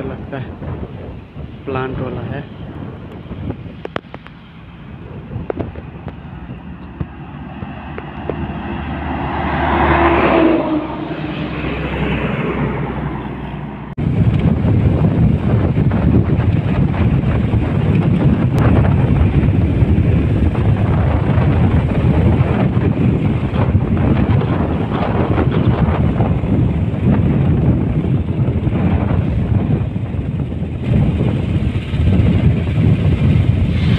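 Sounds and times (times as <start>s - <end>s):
road noise: 0.0s - 33.9s
wind buffeting microphone: 0.0s - 33.9s
bus passing by: 3.3s - 33.9s.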